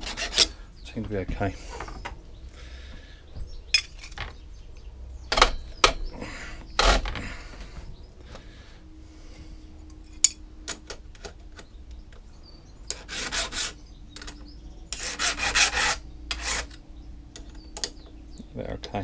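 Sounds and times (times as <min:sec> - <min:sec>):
file rasping on chainsaw chain: 0:00.0 - 0:00.6, 0:12.9 - 0:13.8, 0:14.9 - 0:16.8.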